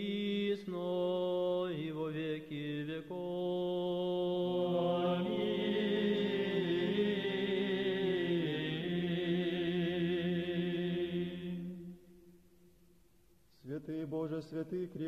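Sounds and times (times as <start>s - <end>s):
men's choir chanting a cappella: 0.0s - 11.9s.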